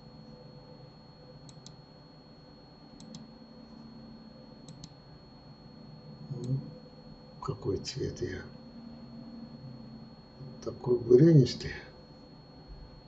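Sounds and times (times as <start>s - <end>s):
faint steady hum: 0.0s - 13.0s
computer mouse clicking: 1.4s - 1.8s, 3.0s - 3.3s, 4.6s - 5.0s.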